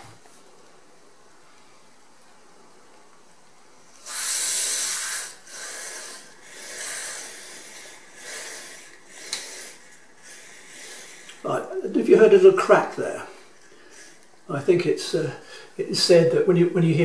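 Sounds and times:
freeze spray hissing: 3.9s - 14.2s.

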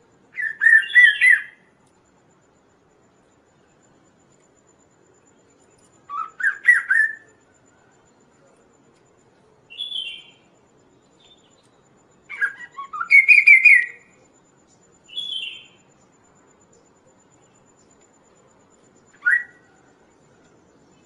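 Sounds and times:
bird whistled song: 0.3s - 1.7s, 6.0s - 7.4s, 9.7s - 14.2s, 15.1s - 15.9s, 19.1s - 19.8s.

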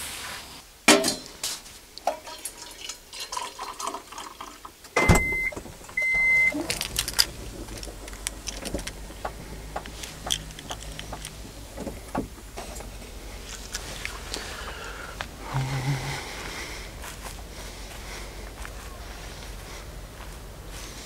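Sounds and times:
short electronic beeps: 5.0s - 6.6s
steady low hum: 5.0s - 21.0s
clicks and knocks of handling: 6.6s - 14.4s.

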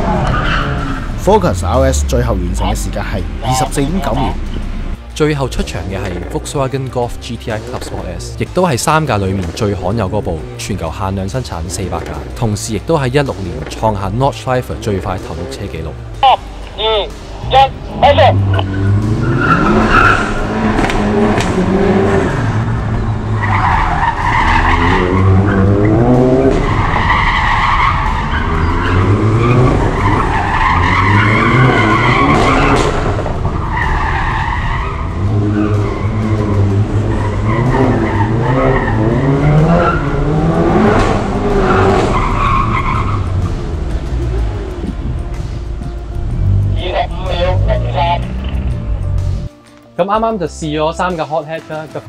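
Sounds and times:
car engine revving: 0.0s - 49.5s
tyres squealing: 7.4s - 43.5s.

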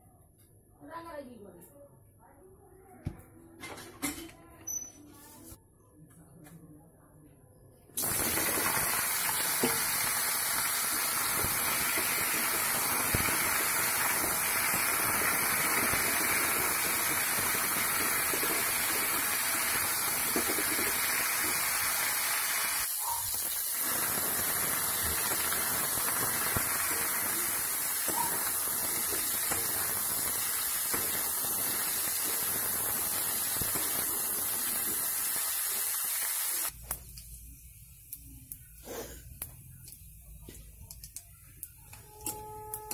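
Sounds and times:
vegetables sizzling in hot oil: 8.0s - 37.2s.

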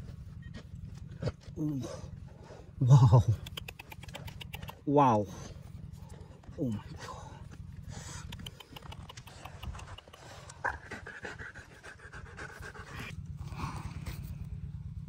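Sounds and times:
dog panting: 7.8s - 13.1s.

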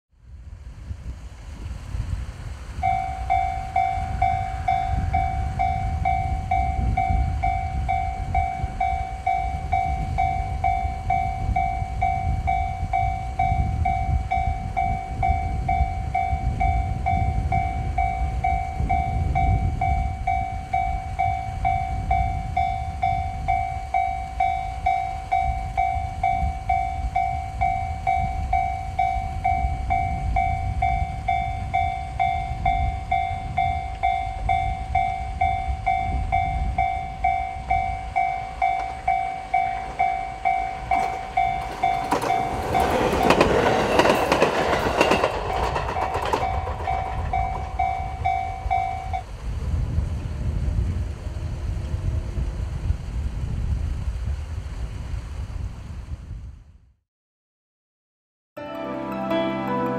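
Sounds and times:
train wheels on rails: 0.4s - 55.2s
electronic crossing bell: 2.8s - 49.3s.

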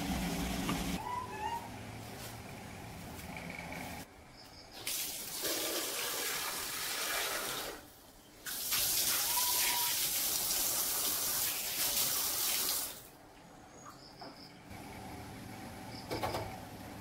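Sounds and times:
water running and splashing: 8.4s - 13.1s.

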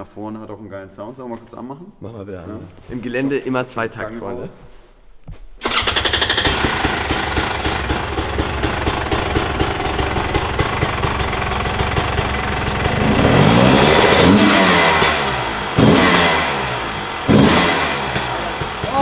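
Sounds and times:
two-stroke engine idling and revving: 5.7s - 19.0s.

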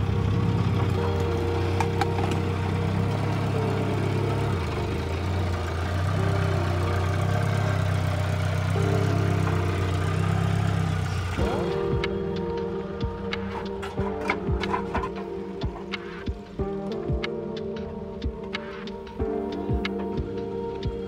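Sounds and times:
loader engine running: 0.0s - 12.8s.

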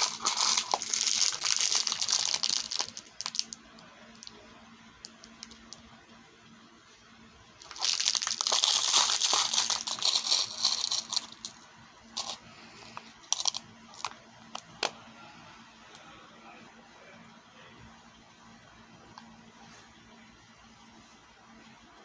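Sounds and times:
metal beads rattling: 0.0s - 3.5s, 7.6s - 12.4s, 13.2s - 14.1s
plastic bag crinkling: 0.0s - 4.3s, 7.6s - 12.4s.

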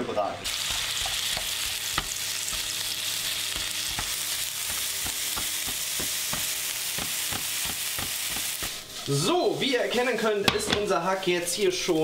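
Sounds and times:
mince sizzling in hot oil: 0.4s - 12.0s
spatula tapping and scraping pan: 0.6s - 2.8s, 3.5s - 8.6s.

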